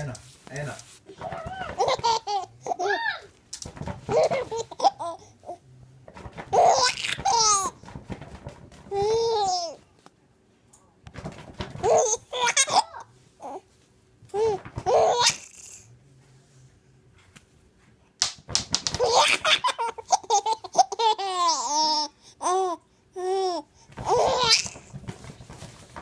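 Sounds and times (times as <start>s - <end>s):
baby laughing and squealing: 1.2s - 3.3s, 4.1s - 5.2s, 6.5s - 7.7s, 11.8s - 13.6s, 14.4s - 15.8s, 19.0s - 24.9s.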